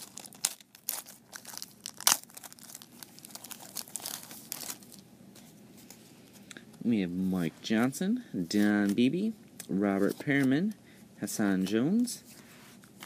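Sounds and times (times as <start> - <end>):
foil wrapper crinkling and tearing: 0.0 - 5.0.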